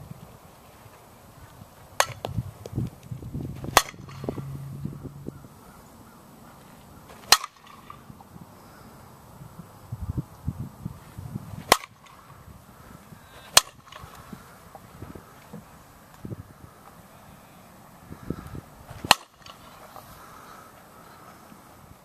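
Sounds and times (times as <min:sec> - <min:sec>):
bat hitting softball: 0:02.0 - 0:02.8, 0:03.6 - 0:05.3, 0:07.2 - 0:08.1, 0:11.6 - 0:12.2, 0:13.5 - 0:14.1, 0:19.0 - 0:19.6.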